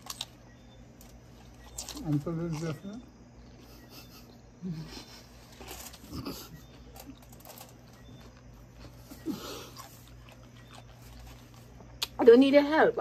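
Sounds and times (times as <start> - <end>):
chewing with wet smacks: 6.0 - 12.2.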